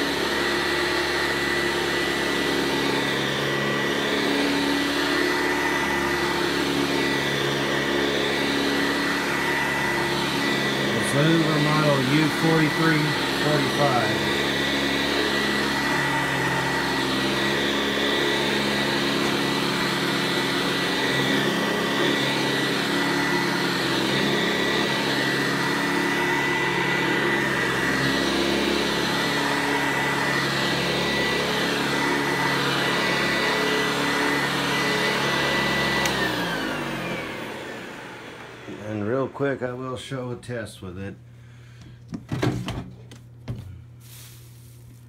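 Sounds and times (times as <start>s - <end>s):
vacuum cleaner running: 0.0s - 45.0s.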